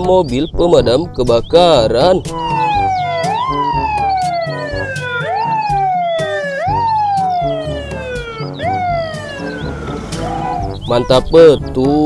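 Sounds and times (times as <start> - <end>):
fire engine siren wailing: 2.4 - 10.8.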